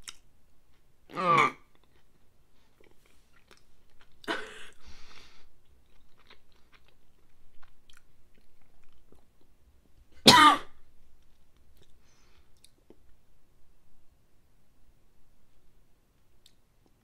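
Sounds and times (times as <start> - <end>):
faint chewing clicks: 1.7 - 4.4, 5.1 - 10.1, 11.2 - 13.2, 16.2 - 17.0
woman coughing: 4.3 - 4.7, 10.3 - 10.8.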